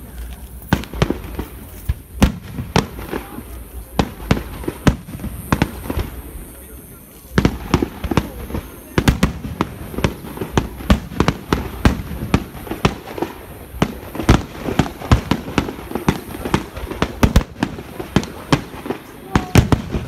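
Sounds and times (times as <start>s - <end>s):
firework shells bursting: 7.3s - 20.0s.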